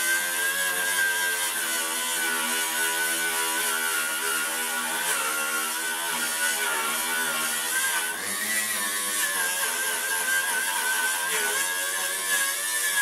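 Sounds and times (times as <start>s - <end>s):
angle grinder wire brushing steel: 0.0s - 13.0s.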